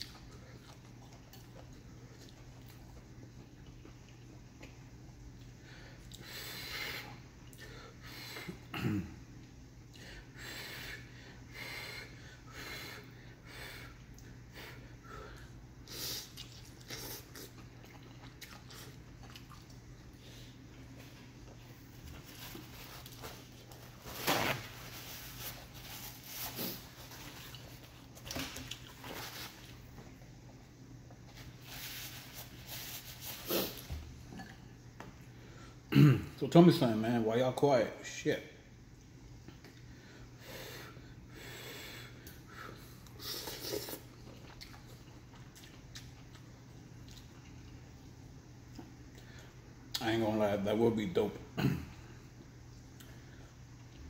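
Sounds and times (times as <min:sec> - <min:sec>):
man breathing heavily through nose: 0:05.6 - 0:08.7, 0:10.0 - 0:16.3, 0:39.9 - 0:43.3
eating noises: 0:15.4 - 0:20.9
paper towel ripping: 0:24.0 - 0:26.8.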